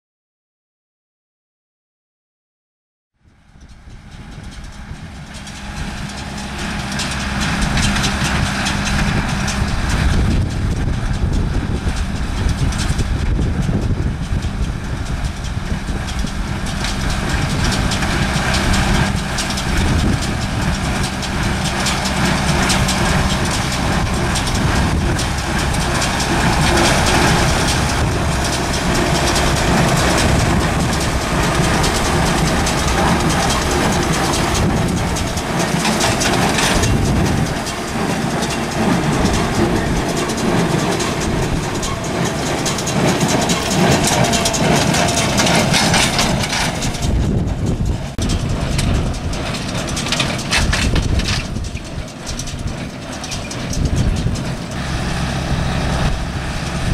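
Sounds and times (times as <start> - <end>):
tractor diesel engine under load: 3.2 - 56.9
baler clattering and knocking: 15.2 - 56.9.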